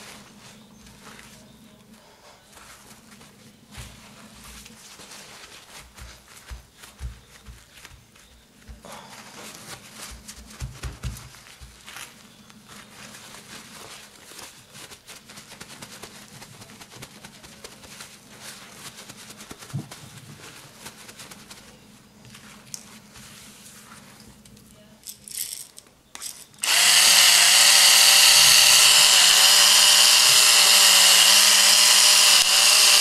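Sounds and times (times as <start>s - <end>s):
paper towel rustling and crinkling: 0.0s - 24.8s.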